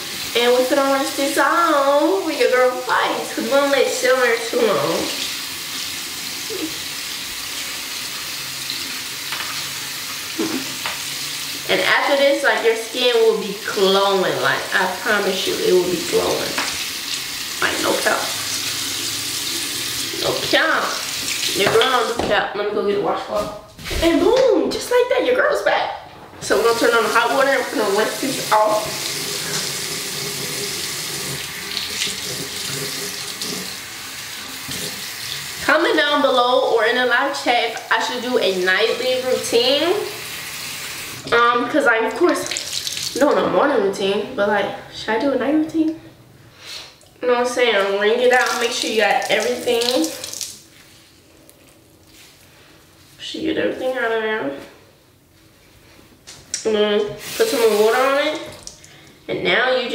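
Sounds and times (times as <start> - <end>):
tap water running into sink: 2.9 - 22.4, 26.5 - 36.0, 42.2 - 43.4, 48.2 - 50.6
water splashing: 48.2 - 50.6.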